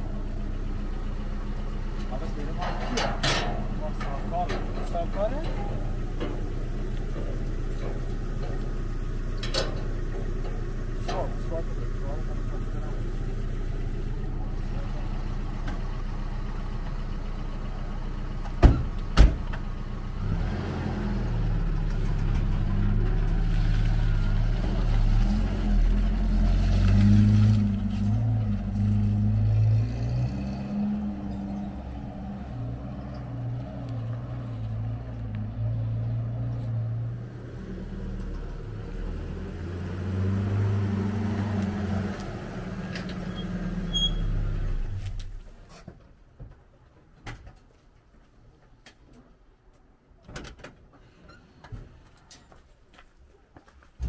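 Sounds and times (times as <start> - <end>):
pickup truck engine running: 3.5 - 20.2.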